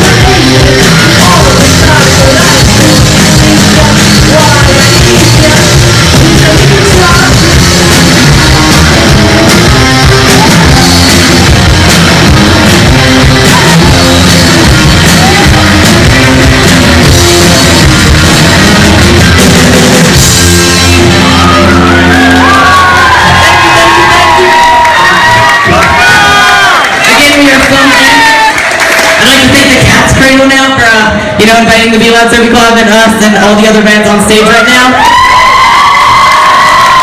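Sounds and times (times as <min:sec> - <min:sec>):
bass guitar: 0:00.0 - 0:28.2, 0:29.1 - 0:37.0
drum kit: 0:00.0 - 0:28.4
distorted electric guitars: 0:00.0 - 0:37.0.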